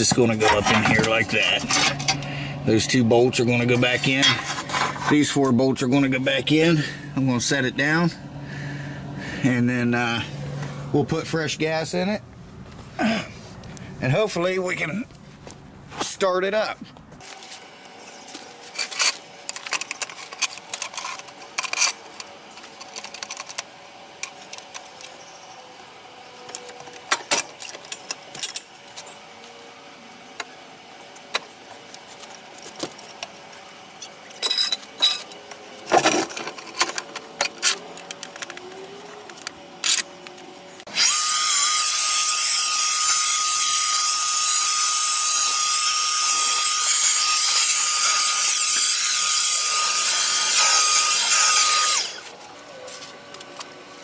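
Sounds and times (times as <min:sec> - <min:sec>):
leaf blower hiss and whine: 0:37.2 - 0:54.0.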